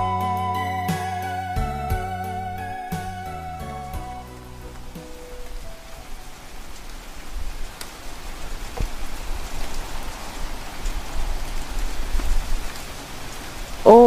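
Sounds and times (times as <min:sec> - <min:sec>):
heavy rain hissing: 0:00.0 - 0:14.0
raindrop ticks: 0:04.2 - 0:13.8.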